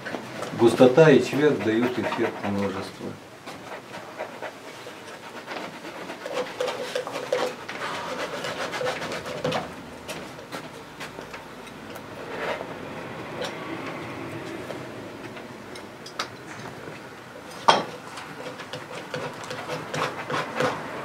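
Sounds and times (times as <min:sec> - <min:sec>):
brush scrubbing paint on canvas: 0:00.5 - 0:11.2, 0:18.0 - 0:21.0.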